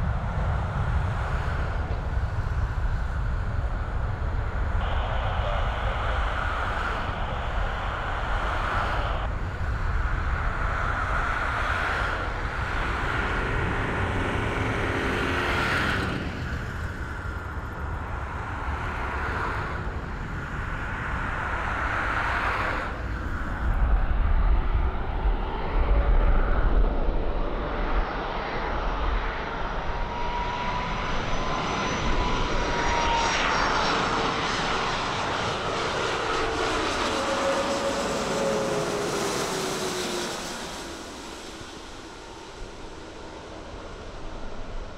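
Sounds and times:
low rumble: 0:00.0 - 0:18.8
jet engine whine: 0:00.0 - 0:44.9
jet engines at takeoff: 0:00.0 - 0:44.9.

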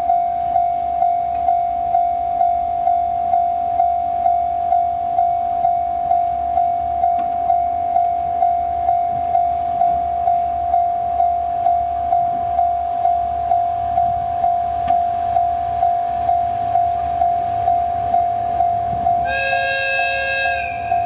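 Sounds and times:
diesel locomotive rumble: 0:00.0 - 0:21.0
level crossing alarm bell ringing: 0:00.0 - 0:21.0.

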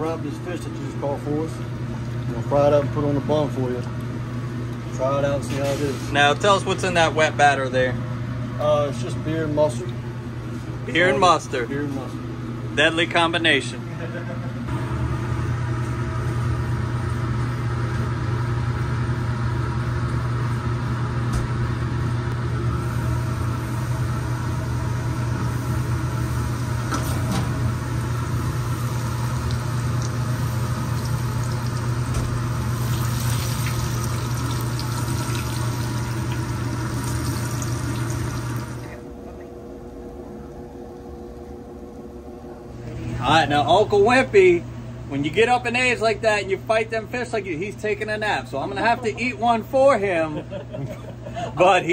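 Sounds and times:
kitchen machinery hum: 0:00.0 - 0:51.9
oil bubbling and sizzling: 0:22.8 - 0:39.0.

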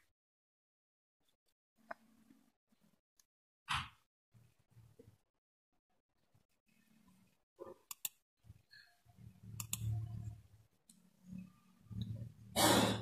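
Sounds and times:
computer mouse clicks: 0:07.7 - 0:08.2, 0:09.5 - 0:10.1
low hum: 0:09.1 - 0:12.6.

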